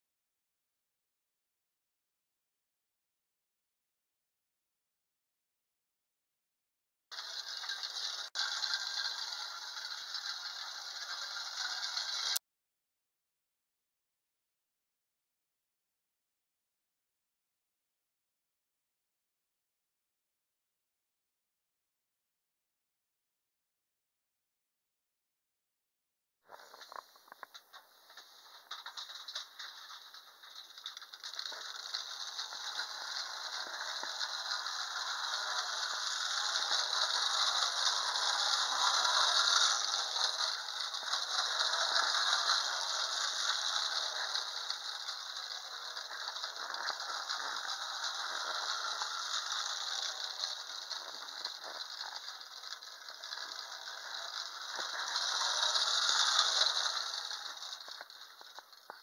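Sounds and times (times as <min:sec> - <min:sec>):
wind-up toy rattling on wood: 0:07.2 - 0:12.4, 0:26.5 - 0:59.0.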